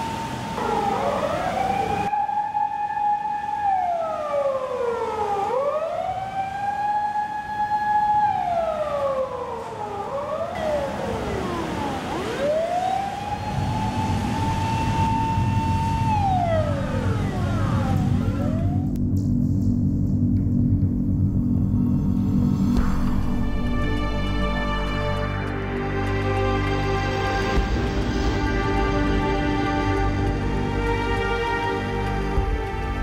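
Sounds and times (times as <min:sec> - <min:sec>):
emergency sirens wailing: 0:00.0 - 0:19.0, 0:23.3 - 0:33.0
low steady drone: 0:08.3 - 0:33.0.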